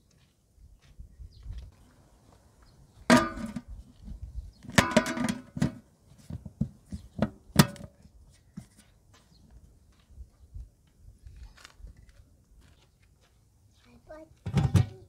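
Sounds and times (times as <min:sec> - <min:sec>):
metal pot lid clanging: 0:03.1 - 0:03.6, 0:04.8 - 0:05.7
metal knocks: 0:03.1 - 0:03.7.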